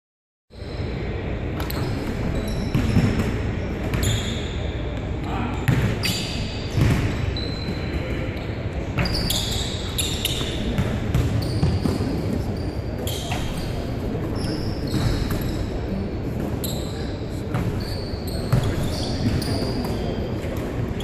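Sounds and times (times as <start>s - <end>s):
sneaker squeaks: 0.5s - 21.0s
basketballs bouncing on wooden floor: 2.4s - 4.2s, 5.7s - 6.0s, 6.7s - 8.0s, 9.0s - 12.4s.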